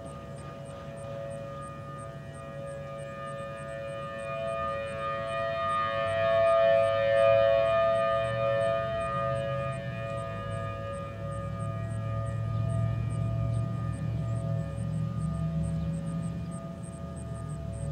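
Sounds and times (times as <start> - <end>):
civil defense sirens steady tone: 0.0 - 17.9.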